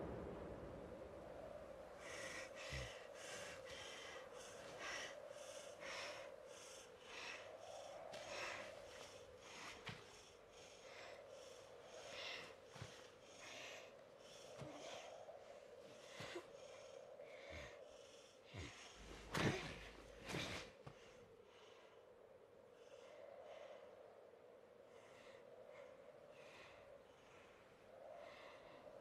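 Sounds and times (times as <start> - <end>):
low steady hum: 0.0 - 21.9
quick breathing puffs: 2.0 - 22.0.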